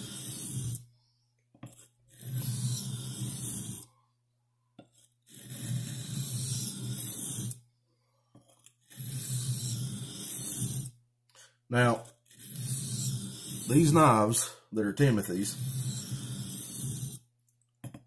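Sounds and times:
knife rasping on sharpening stone: 0:00.0 - 0:00.9, 0:01.6 - 0:03.9, 0:04.9 - 0:07.6, 0:08.5 - 0:11.0, 0:11.8 - 0:14.3, 0:15.2 - 0:17.3.

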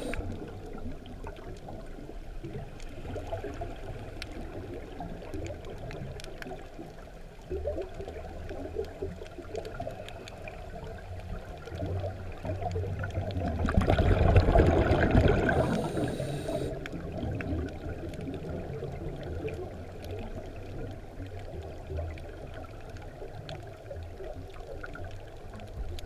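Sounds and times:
muffled underwater water rush: 0:00.0 - 0:26.0
faint clicks: 0:05.0 - 0:07.0.

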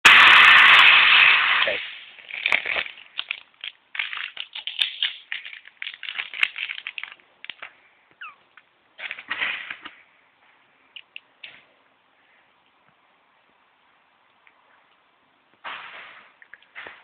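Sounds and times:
brief squeak: 0:08.2 - 0:08.4.

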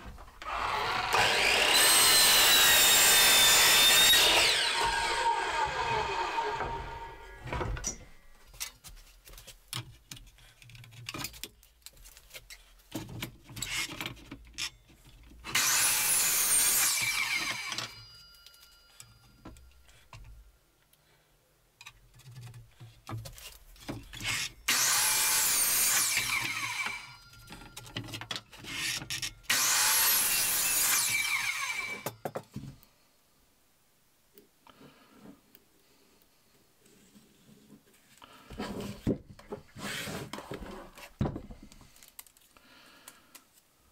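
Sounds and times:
mitre saw cutting wood: 0:00.4 - 0:07.4, 0:15.5 - 0:18.0, 0:24.2 - 0:27.2, 0:28.6 - 0:32.1.

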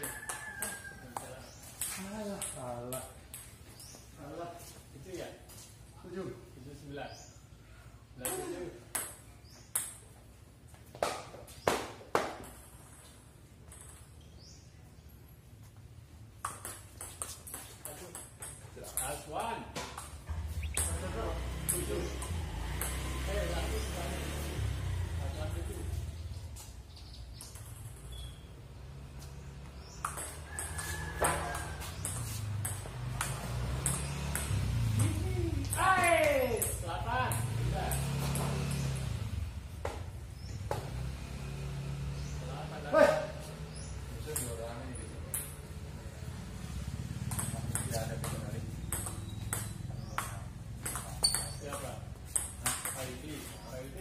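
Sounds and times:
table tennis ball rally: 0:00.0 - 0:03.9, 0:08.1 - 0:10.2, 0:10.9 - 0:14.4, 0:16.3 - 0:25.5, 0:27.3 - 0:28.5, 0:29.8 - 0:41.2, 0:42.7 - 0:54.0
table tennis ball taps: 0:30.0 - 0:38.6, 0:47.3 - 0:53.1.

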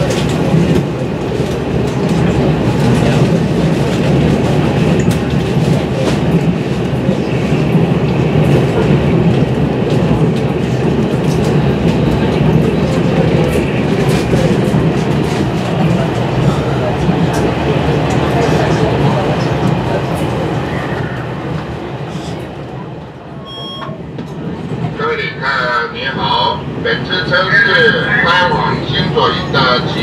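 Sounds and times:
train rumble: 0:00.0 - 0:30.0.

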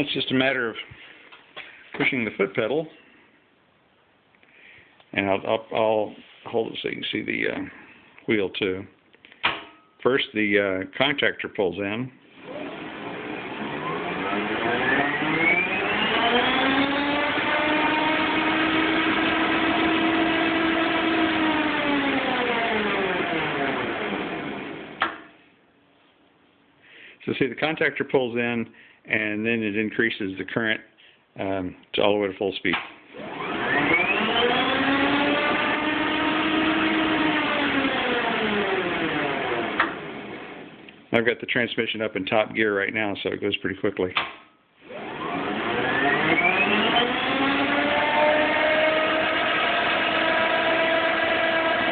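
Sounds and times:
electric motor and gears whining: 0:12.4 - 0:25.1, 0:33.2 - 0:40.8, 0:44.8 - 0:51.9.

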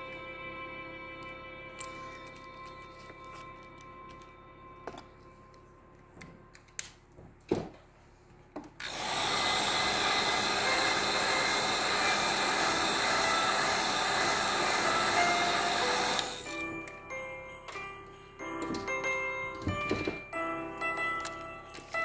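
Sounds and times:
heat gun blowing: 0:08.8 - 0:16.5
handling clicks and knocks: 0:18.6 - 0:20.4.

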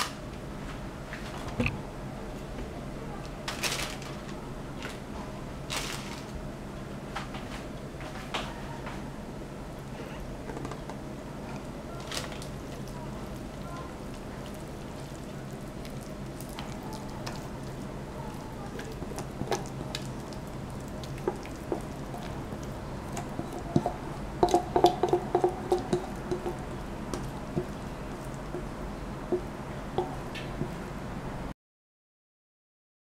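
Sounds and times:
steady low hum: 0:00.0 - 0:31.5
spatula squishing wet mixture: 0:11.4 - 0:31.0.

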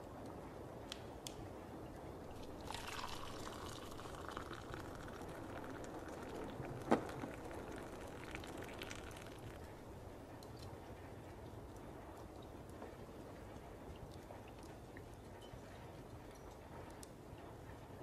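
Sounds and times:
steady background hiss: 0:00.0 - 0:18.0
liquid pouring into vessel: 0:02.3 - 0:09.8.

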